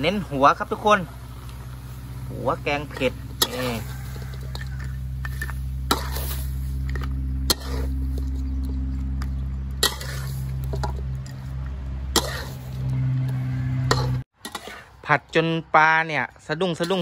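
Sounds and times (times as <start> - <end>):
steady low hum: 0.0 - 13.1
metal spatula clanking on wok: 2.6 - 8.6, 9.2 - 11.4, 12.1 - 12.7, 13.8 - 14.9, 16.7 - 17.0.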